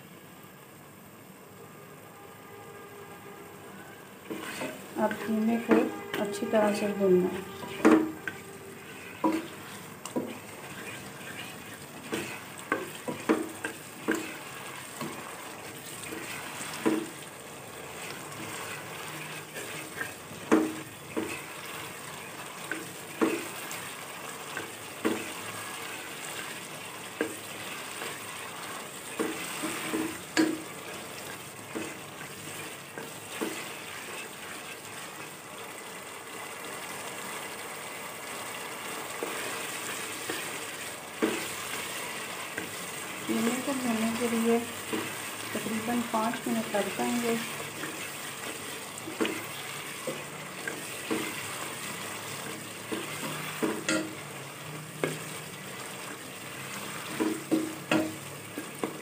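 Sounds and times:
meat sizzling in oil: 4.0 - 59.0
spoon scraping a pot: 4.3 - 17.2.

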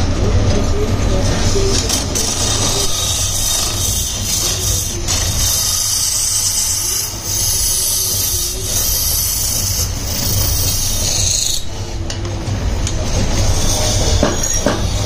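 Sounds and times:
tool scraping spinning brass: 1.9 - 11.9, 13.1 - 15.0.

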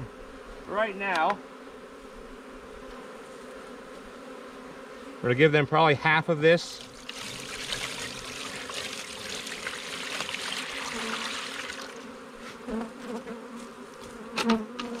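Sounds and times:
honeybees buzzing: 0.0 - 15.0
syrup splashing into feeder: 6.7 - 12.0.

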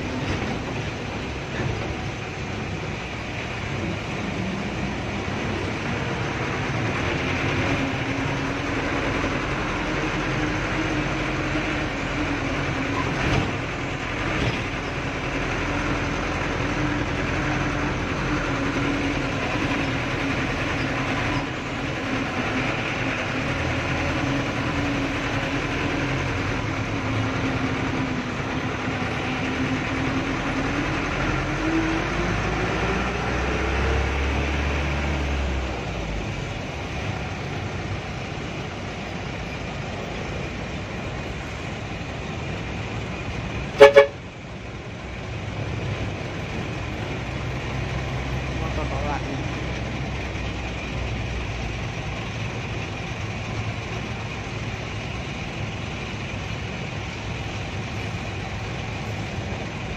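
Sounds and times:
bus engine running: 0.0 - 59.9
road noise: 0.0 - 59.9.

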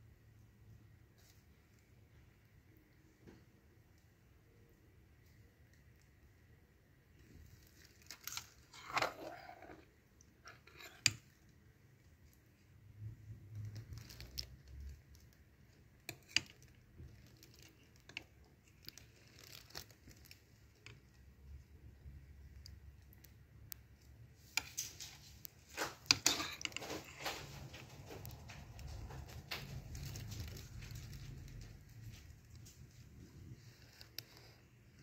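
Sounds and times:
spoon scraping bowl: 8.7 - 11.3, 25.8 - 27.2.

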